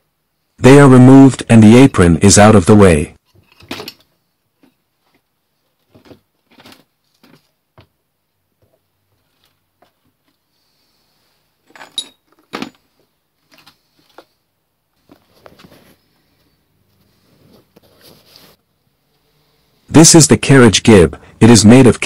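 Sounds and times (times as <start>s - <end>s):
small metal tools clinking: 11.6s - 12.9s.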